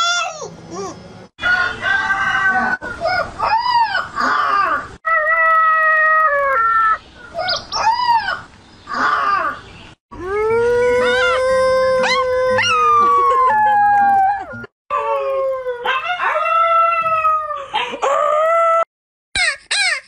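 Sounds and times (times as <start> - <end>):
dogs howling: 10.2 - 18.8.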